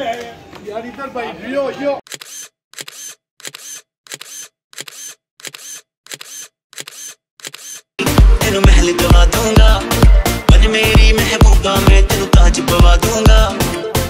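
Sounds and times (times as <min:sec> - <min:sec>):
camera shutter clicks: 0:02.1 - 0:07.9
dance music with heavy bass: 0:08.0 - 0:13.8.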